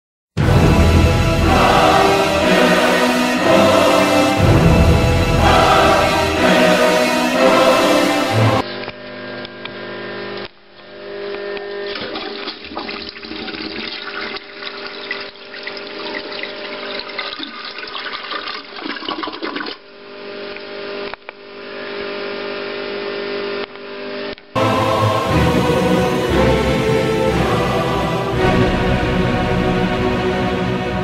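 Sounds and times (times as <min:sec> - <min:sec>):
toilet flushing: 0:12.0 - 0:19.8.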